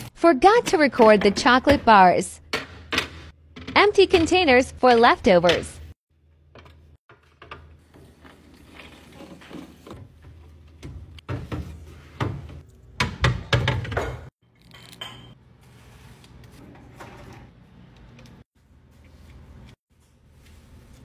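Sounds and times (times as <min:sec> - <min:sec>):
glass containers clinking on shelves: 0:13.8 - 0:15.4.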